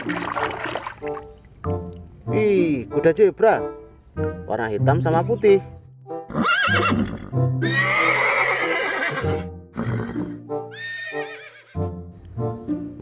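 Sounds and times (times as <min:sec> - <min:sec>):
background music: 0:00.0 - 0:13.0
horse-like animal whinnying: 0:06.3 - 0:11.7.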